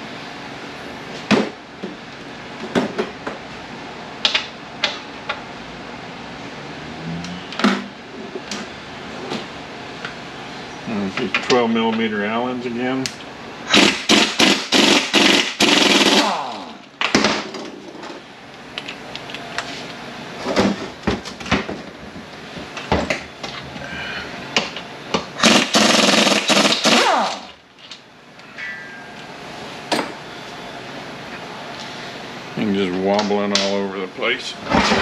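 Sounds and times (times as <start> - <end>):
pneumatic impact wrench hammering: 13.7 - 16.4, 25.4 - 27.6.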